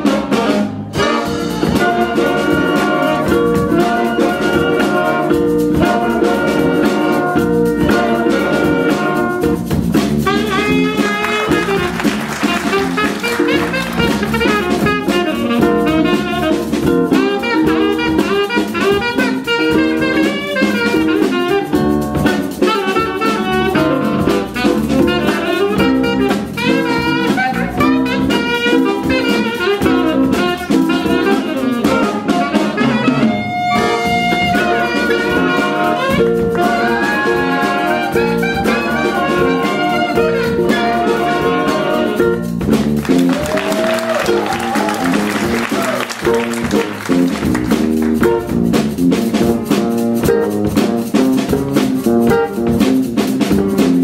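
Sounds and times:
saxophone: 0.0s - 49.4s, 52.0s - 53.2s
jazz band playing: 0.0s - 54.0s.

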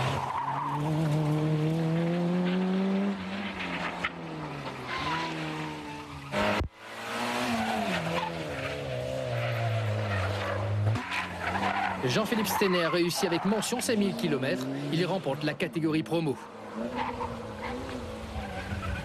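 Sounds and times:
rally car engine revving: 0.0s - 19.0s.

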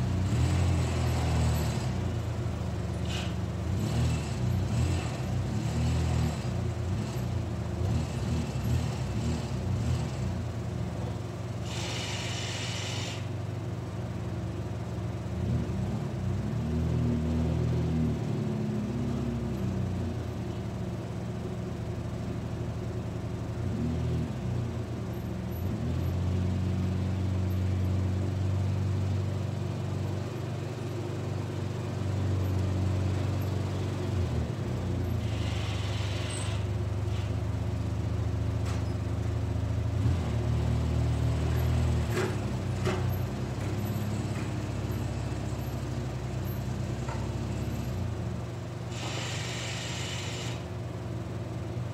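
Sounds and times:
short hiss: 11.6s - 13.3s, 48.9s - 50.7s
atv engine running: 21.7s - 51.2s.

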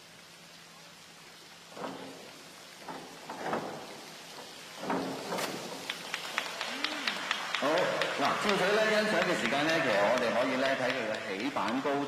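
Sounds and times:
steady hiss: 0.0s - 12.0s
diving board knocks: 1.7s - 6.2s.

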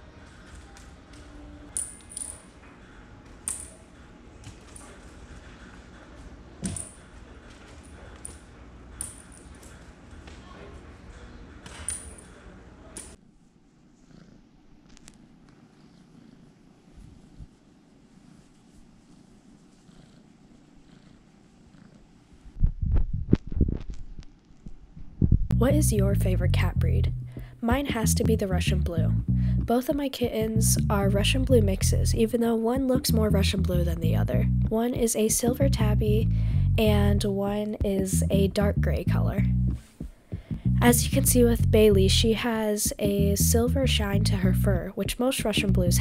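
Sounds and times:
kitten purring: 14.0s - 24.2s
loud low thumps and rumbles: 25.0s - 29.7s.

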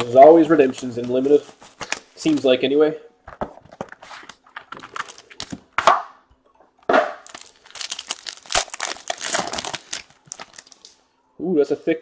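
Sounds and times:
plastic wrapping tearing and crinkling: 3.9s - 5.8s, 7.2s - 11.0s.

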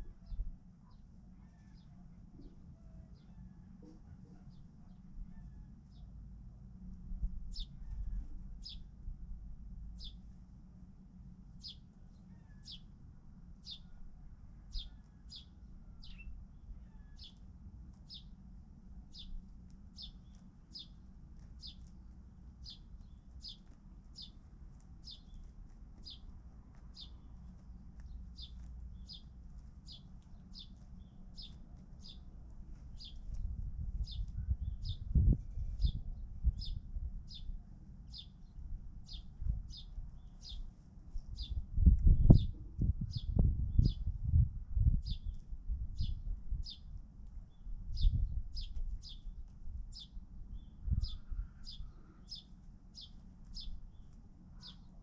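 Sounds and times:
low steady rumble: 0.0s - 55.0s
bird chirping: 10.0s - 10.2s, 11.6s - 12.9s, 13.6s - 14.0s, 14.7s - 17.4s, 18.0s - 18.3s, 20.0s - 21.0s, 21.6s - 21.9s, 22.6s - 24.4s, 25.0s - 26.3s, 26.9s - 27.3s, 28.0s - 32.3s, 32.9s - 33.2s, 34.0s - 40.6s, 41.2s - 44.1s, 49.9s - 55.0s.

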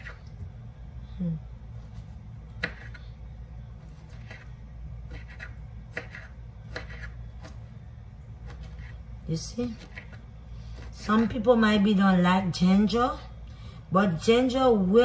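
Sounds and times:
low steady hum: 0.0s - 15.0s
knife chopping on cutting board: 2.6s - 3.0s, 4.0s - 4.5s, 5.1s - 7.6s.

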